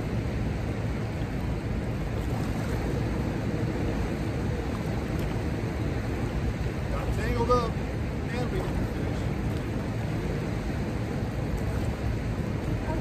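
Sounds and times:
river water rushing: 0.0s - 13.0s.

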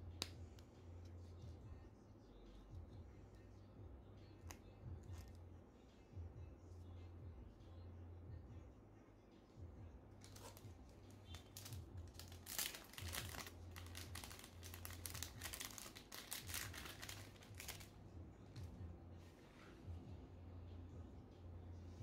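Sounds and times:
faint low hum: 0.0s - 22.0s
packaging sleeve crinkling: 10.2s - 10.6s, 11.3s - 17.9s.

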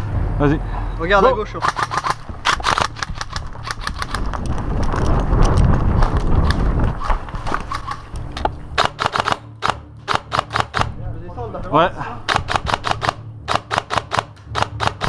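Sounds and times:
low rumble of wind noise: 0.0s - 15.0s
footsteps on wooden planks: 1.6s - 8.8s
short irregular clicks: 7.7s - 10.9s, 12.3s - 15.0s.

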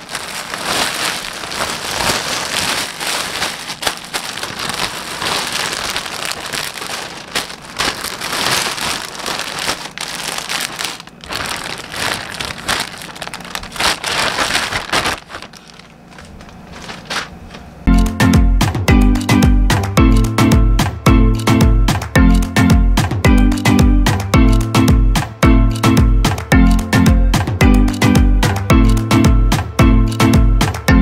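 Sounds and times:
plastic bags crinkling: 0.0s - 17.8s.

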